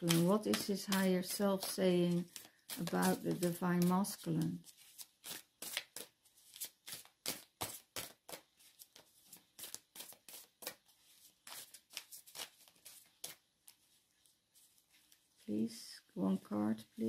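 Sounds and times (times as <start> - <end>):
cards being shuffled: 0.0 - 14.0.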